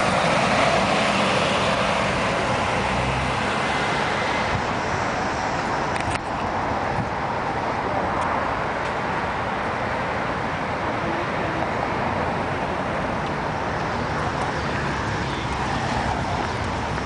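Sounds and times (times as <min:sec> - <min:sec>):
city street traffic: 0:00.0 - 0:17.0.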